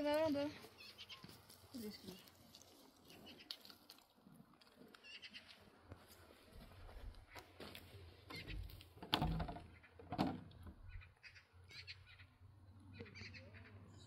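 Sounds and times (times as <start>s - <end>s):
small birds chirping: 0.1s - 3.7s, 10.8s - 14.0s.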